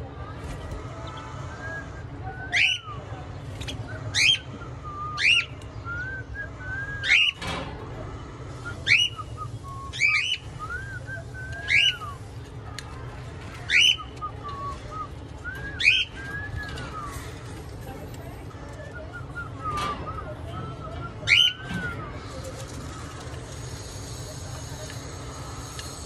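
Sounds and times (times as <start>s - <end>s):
cockatiel whistled calls: 2.5s - 2.9s, 8.8s - 12.2s, 15.5s - 17.2s, 21.2s - 21.8s.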